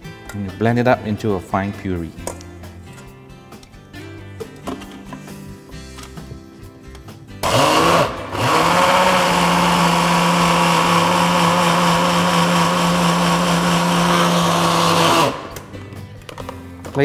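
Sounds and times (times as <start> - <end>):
food processor motor: 7.4 - 15.7.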